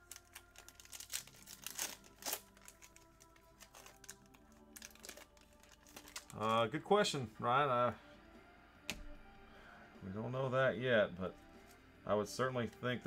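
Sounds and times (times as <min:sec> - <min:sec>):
foil wrappers crinkling and tearing: 0:00.0 - 0:06.7
soft background music: 0:00.0 - 0:13.0.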